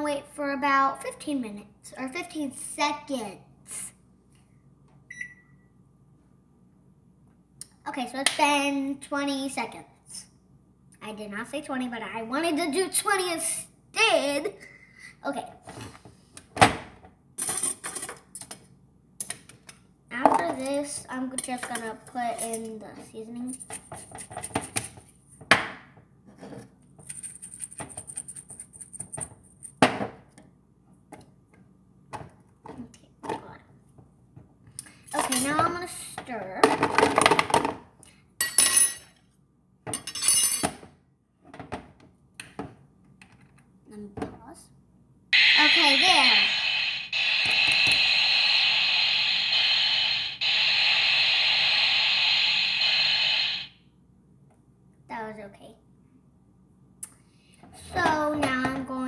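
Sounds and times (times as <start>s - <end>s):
steam-like hiss: 45.4s - 53.8s.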